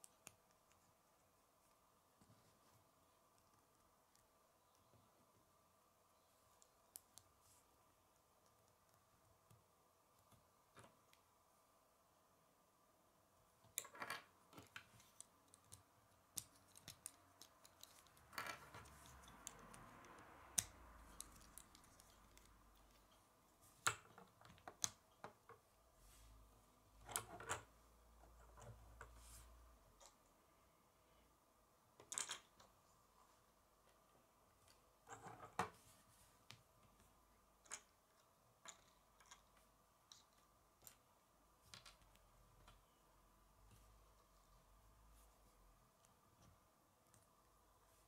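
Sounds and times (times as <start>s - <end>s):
soft rustle of handling: 0.0s - 9.7s, 25.6s - 27.0s, 27.8s - 31.3s, 32.7s - 48.0s.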